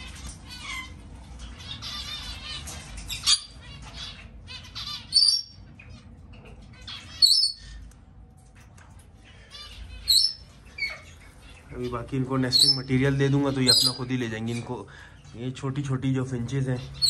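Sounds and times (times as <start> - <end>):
sharp loud bird calls: 0.5 - 5.6, 6.9 - 7.8, 9.4 - 14.1
finches chirping and chattering: 0.5 - 6.0, 6.8 - 7.8, 9.5 - 15.5.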